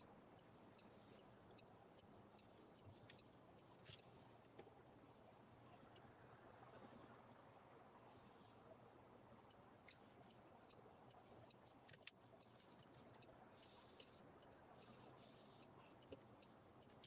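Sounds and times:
light ticks: 0:00.0 - 0:04.7, 0:09.4 - 0:17.0
faint hiss: 0:00.0 - 0:17.0.

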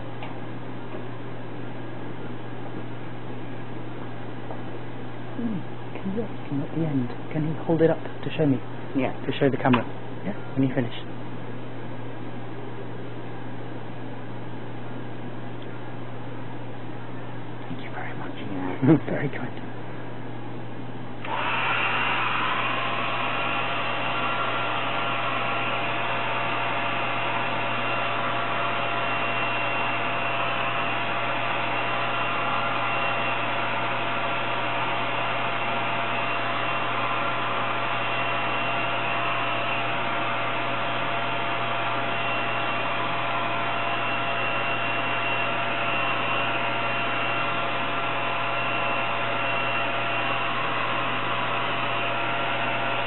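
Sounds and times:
hair dryer blowing with faint whine: 0:21.2 - 0:53.0.

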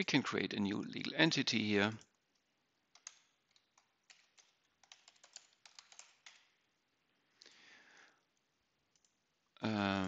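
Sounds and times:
typing on computer keyboard: 0:02.0 - 0:06.6, 0:08.9 - 0:09.2.

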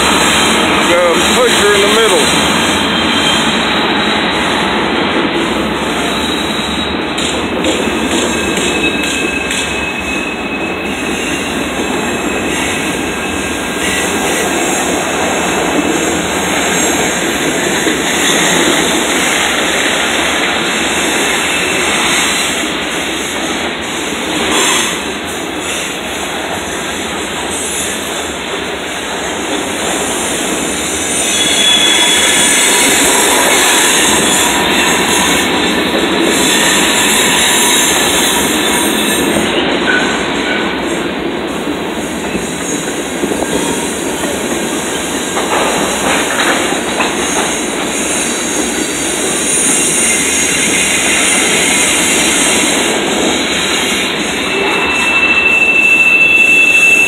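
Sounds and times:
train wheels rumbling on rails: 0:00.0 - 0:57.0
wheel squeals: 0:02.6 - 0:04.3, 0:06.0 - 0:07.3, 0:08.2 - 0:14.0, 0:31.1 - 0:35.2, 0:53.8 - 0:57.0.

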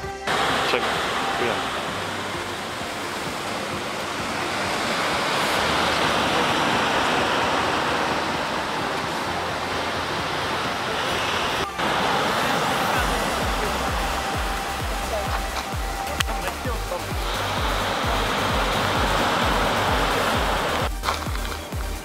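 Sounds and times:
ocean surf breaking: 0:00.3 - 0:21.3.

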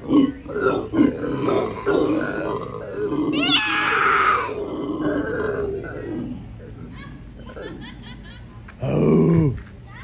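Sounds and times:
monkey rough rising cry: 0:03.2 - 0:05.0.

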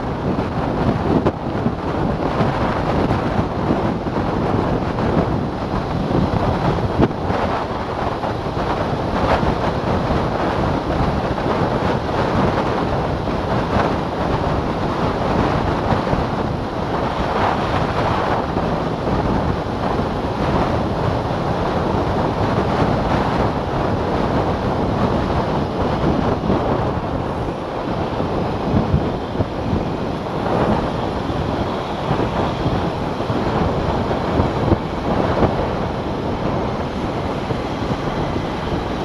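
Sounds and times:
road noise: 0:00.0 - 0:39.0
wind buffeting microphone: 0:00.0 - 0:39.0.

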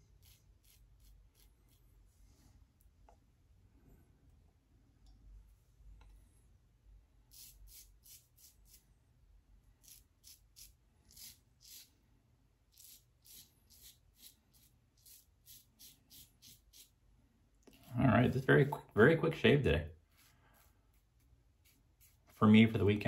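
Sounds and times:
razor scraping stubble: 0:00.0 - 0:01.9, 0:07.3 - 0:08.8, 0:09.8 - 0:11.9, 0:12.7 - 0:17.0, 0:20.1 - 0:22.9.

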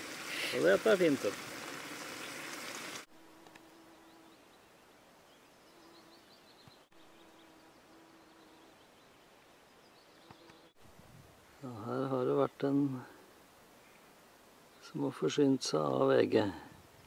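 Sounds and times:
steady hiss: 0:00.0 - 0:03.7
small birds chirping: 0:03.9 - 0:10.8, 0:13.7 - 0:15.2.

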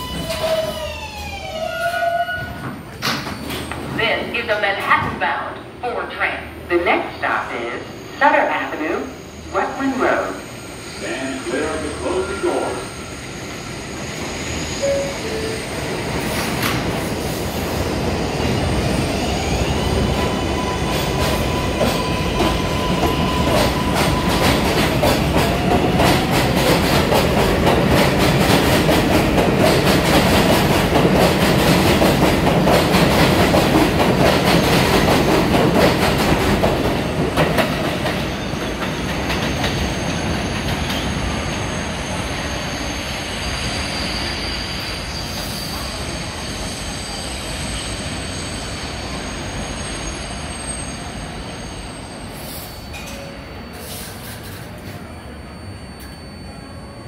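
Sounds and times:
train wheels clattering on track: 0:16.2 - 0:17.4, 0:20.3 - 0:41.6.

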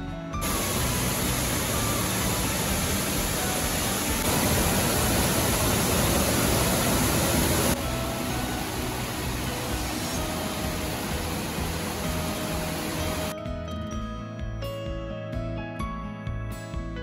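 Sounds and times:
waterfall rushing: 0:00.4 - 0:13.3.

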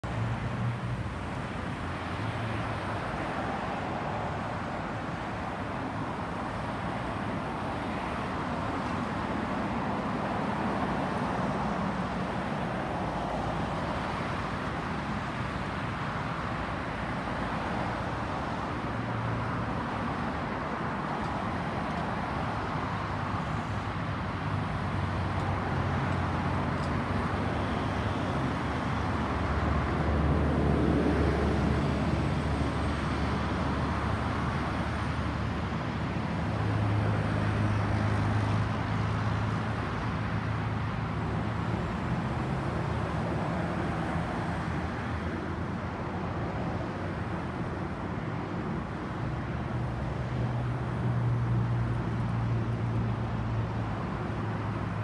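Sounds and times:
road traffic: 0:00.0 - 0:55.0.

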